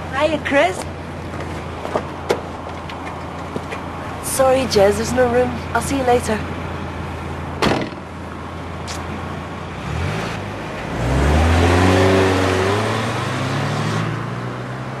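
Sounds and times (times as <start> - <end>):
car engine idling and revving: 0.0 - 15.0
car pulling away: 6.5 - 15.0
car door shutting: 7.6 - 8.1.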